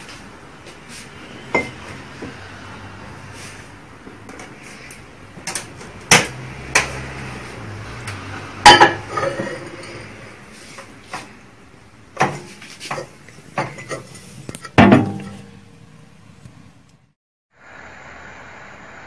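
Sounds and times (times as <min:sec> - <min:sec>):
cup clinking: 0:08.6 - 0:10.0.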